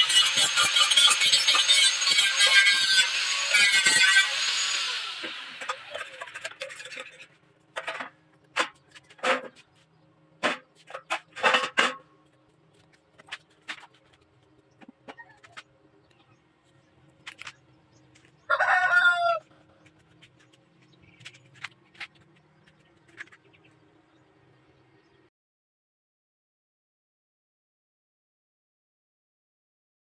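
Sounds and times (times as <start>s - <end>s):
grinder spinning down: 0.0s - 7.1s
angle grinder grinding steel: 0.0s - 7.3s.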